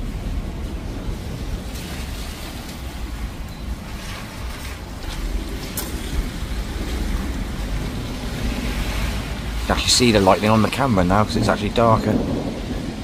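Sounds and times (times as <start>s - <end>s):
distant thunder rumbling: 0.0s - 13.0s.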